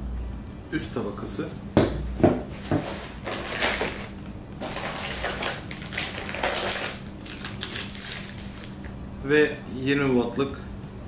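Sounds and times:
plastic bags and paper crinkling: 2.9 - 8.8.

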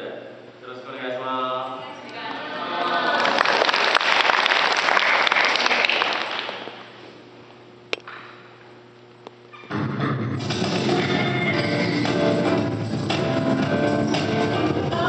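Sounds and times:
audience applause: 2.7 - 6.8
music with drums: 9.7 - 15.0.

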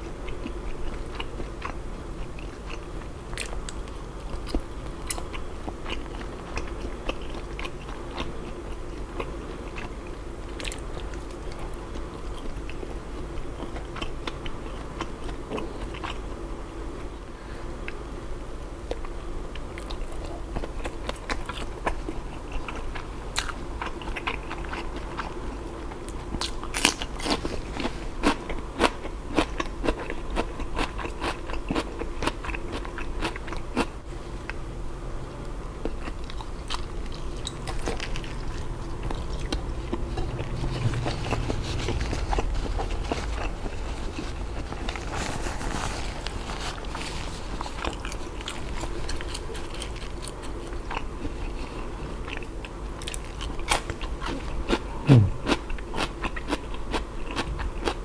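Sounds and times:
biting and chewing food: 0.0 - 16.2, 18.8 - 34.6, 35.4 - 58.0
crisp crunches: 36.0 - 51.0.

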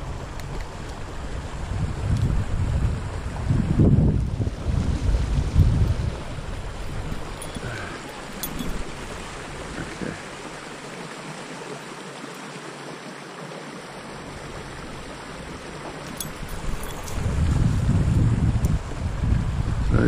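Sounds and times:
wind rumble on microphone: 0.0 - 10.2, 14.3 - 20.0
stream flowing: 0.0 - 20.0.

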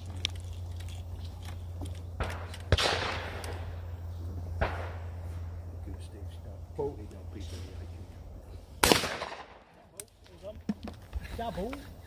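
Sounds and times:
shotgun shot echoing: 2.2 - 3.8, 4.6 - 5.2, 8.8 - 9.7.

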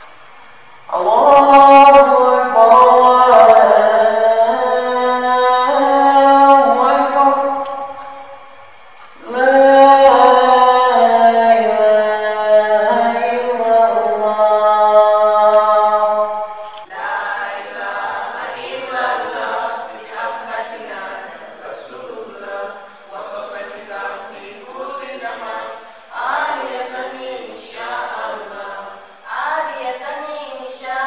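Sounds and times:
echoing chanted voice: 0.0 - 31.0
man chanting call to prayer: 0.9 - 8.4, 9.2 - 16.8.

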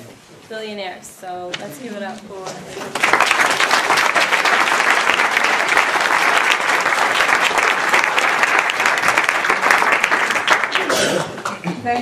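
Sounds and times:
audience applauding: 2.7 - 11.8.

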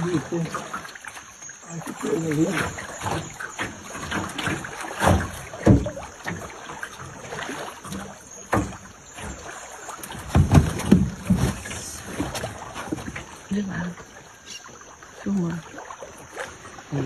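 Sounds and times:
thumps and knocks: 4.0 - 6.5, 10.0 - 13.3.

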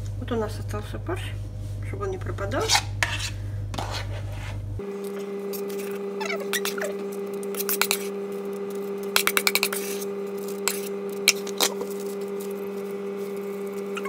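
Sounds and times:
metal spoon scraping plastic bowl: 2.6 - 4.6.

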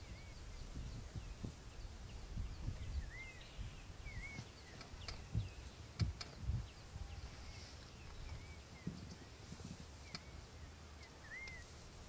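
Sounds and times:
birds whistling: 0.0 - 9.4, 10.0 - 11.8
elephants thudding and rustling: 7.2 - 10.4.

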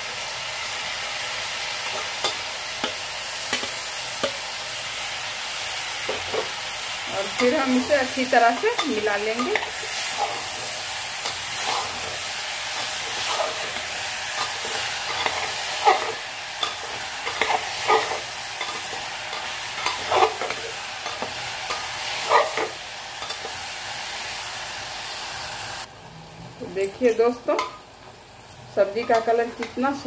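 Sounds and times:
food sizzling in oil: 0.0 - 30.0
ladle scraping and clinking on pot: 12.8 - 23.5.

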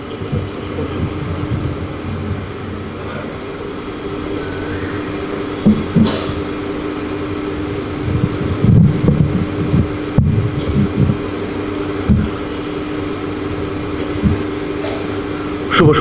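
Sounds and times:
electric fan whirring: 0.0 - 16.0
electrical hum: 0.0 - 16.0
microphone bumps and thuds: 5.6 - 6.4, 8.0 - 11.3, 12.0 - 12.4, 14.2 - 15.0.

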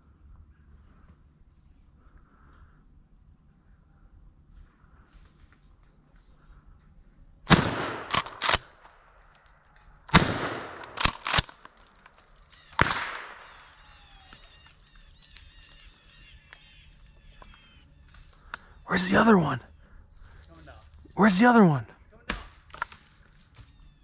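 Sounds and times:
shotgun shots: 7.5 - 8.9, 10.1 - 11.6, 12.7 - 13.8
sharp cracks: 7.5 - 19.5, 21.2 - 23.7.

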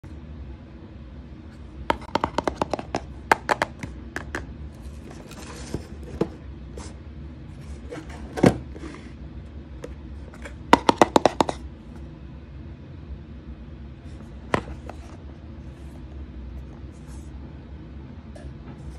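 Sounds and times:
fingernails tapping on cardboard box: 1.9 - 4.4, 10.8 - 11.6
scrape across box: 4.8 - 7.0, 7.6 - 9.2.

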